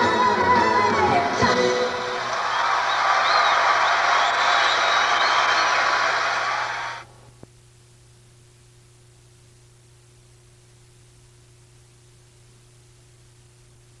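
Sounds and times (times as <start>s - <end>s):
faint tape hiss: 0.0s - 14.0s
audience applause: 1.3s - 7.1s.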